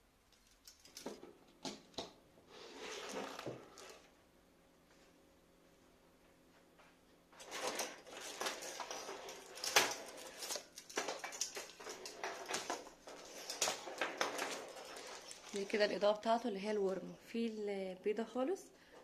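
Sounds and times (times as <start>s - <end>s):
plastic string lights rustling: 7.4s - 16.9s.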